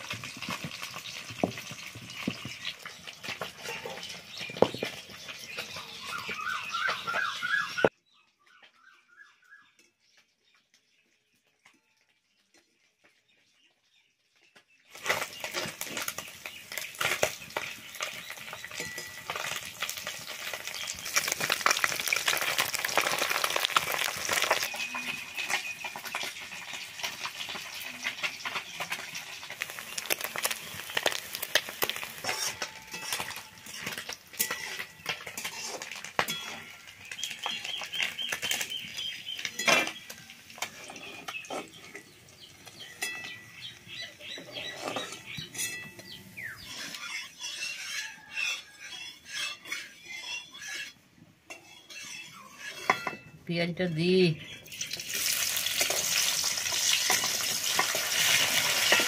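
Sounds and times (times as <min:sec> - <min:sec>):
fish sizzling in oil: 0:00.0 - 0:07.8, 0:14.9 - 0:44.7, 0:54.6 - 0:59.0
metal spatula scraping pan: 0:15.0 - 0:38.7, 0:39.4 - 0:53.4, 0:55.8 - 0:59.0.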